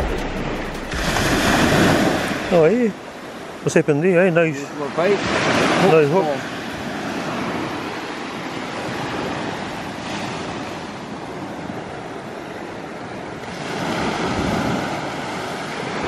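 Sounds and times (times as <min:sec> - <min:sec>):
surf washing onto beach: 0:00.0 - 0:16.0.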